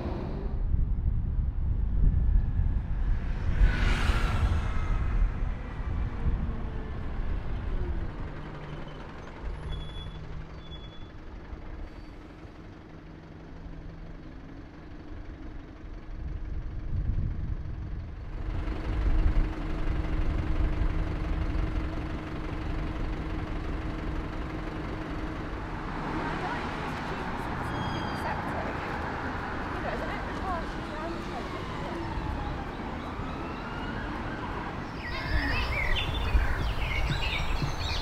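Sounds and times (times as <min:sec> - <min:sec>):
vehicle engine rumbling: 0:00.0 - 0:38.0.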